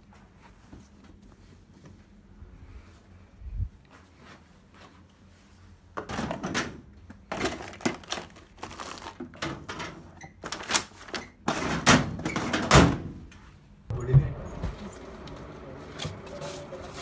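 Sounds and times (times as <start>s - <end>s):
metal drawers opening: 9.4s - 13.1s.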